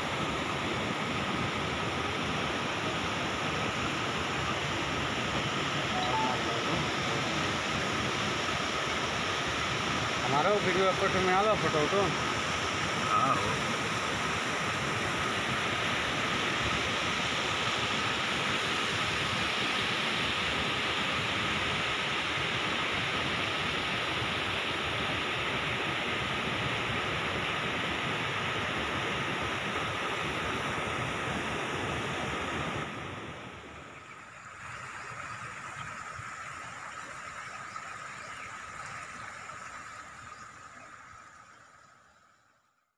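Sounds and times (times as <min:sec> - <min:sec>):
water rushing over rocks: 0:00.0 - 0:26.4
thin high tone: 0:05.9 - 0:07.6.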